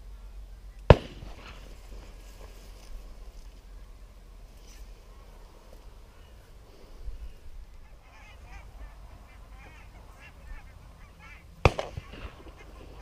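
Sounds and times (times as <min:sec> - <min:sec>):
geese honking: 0:07.7 - 0:13.0.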